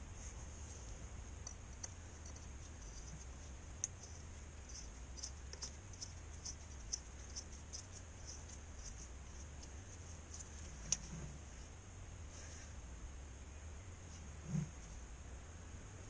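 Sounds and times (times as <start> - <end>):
low steady hum: 0.0 - 16.0
small clicks and scratches: 0.2 - 11.3.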